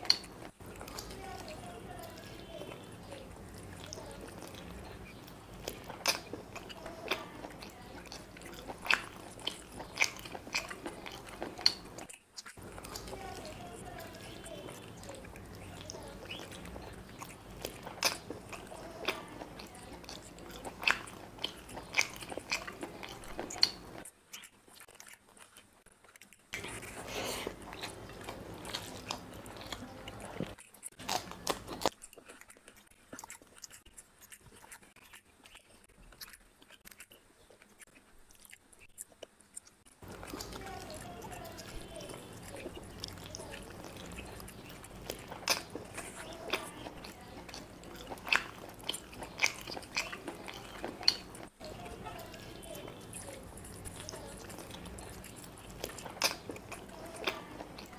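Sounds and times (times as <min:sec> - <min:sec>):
wet mouth clicks: 0:00.0 - 0:01.1, 0:42.6 - 0:51.6, 0:53.1 - 0:57.9
lip smacks: 0:00.0 - 0:01.2, 0:03.6 - 0:57.9
chewing and biting food: 0:00.0 - 0:57.9
crunchy bites: 0:03.7 - 0:57.9.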